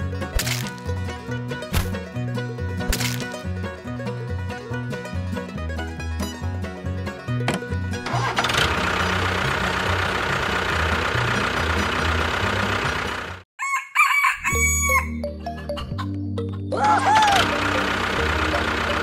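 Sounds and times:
rooster crowing: 13.6s - 15.2s, 16.8s - 17.6s.

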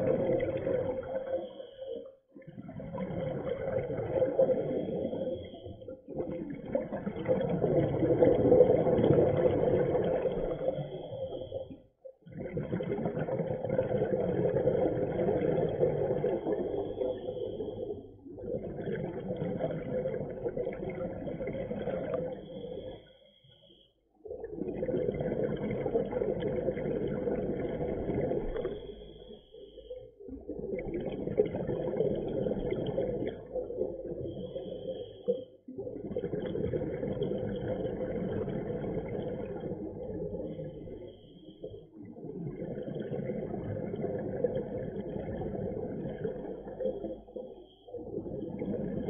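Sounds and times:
bubbling exhalations underwater: 0.0s - 1.4s, 2.5s - 11.6s, 12.2s - 22.4s, 24.4s - 28.9s, 30.3s - 34.9s, 35.8s - 41.1s, 42.2s - 47.3s, 48.0s - 49.0s
scuba breathing through regulator: 34.2s - 35.5s.

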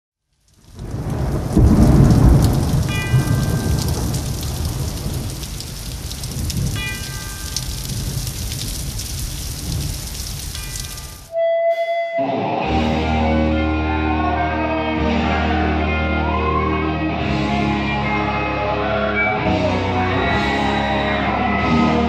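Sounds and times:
distorted electric guitars: 10.6s - 22.0s
guitar bend: 11.3s - 22.0s
bass: 12.2s - 22.0s.

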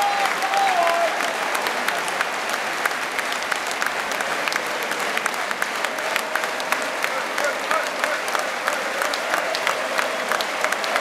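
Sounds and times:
distant shouts: 0.0s - 1.6s
sharp claps: 0.0s - 11.0s
stadium crowd din: 0.0s - 11.0s.

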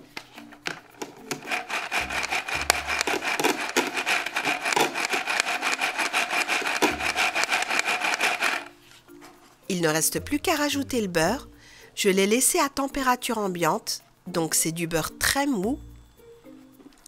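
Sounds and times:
toy hand mixer rattling buzz: 1.3s - 8.7s.

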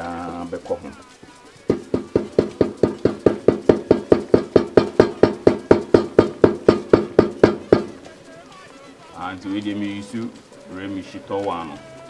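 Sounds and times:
rapid ringing knocks: 0.0s - 8.1s.

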